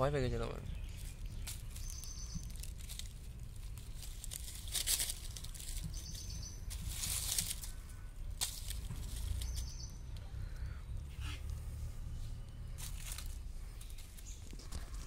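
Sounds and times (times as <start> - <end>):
dry leaves rustling: 0.0 - 15.0
low rumble: 0.6 - 15.0.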